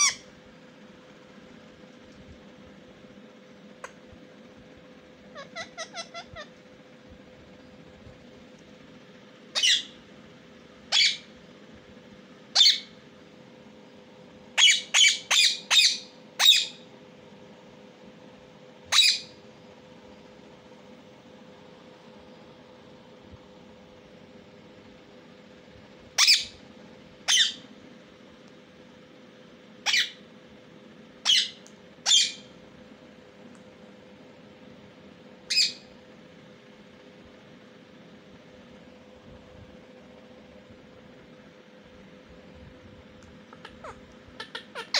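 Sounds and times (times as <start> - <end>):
parakeet chirps: 0.0 - 0.3, 5.3 - 6.5, 9.5 - 10.0, 10.9 - 11.3, 12.5 - 13.0, 14.6 - 16.8, 18.9 - 19.4, 26.2 - 26.6, 27.2 - 27.6, 29.8 - 30.2, 31.2 - 32.5, 35.5 - 35.9, 43.5 - 44.9
parakeet screeching: 0.0 - 0.3, 5.3 - 6.6, 9.5 - 10.0, 10.9 - 11.3, 12.5 - 12.9, 14.6 - 16.8, 18.9 - 19.4, 26.2 - 26.6, 27.3 - 27.6, 29.8 - 30.2, 31.2 - 32.5, 35.5 - 35.9, 43.5 - 44.9.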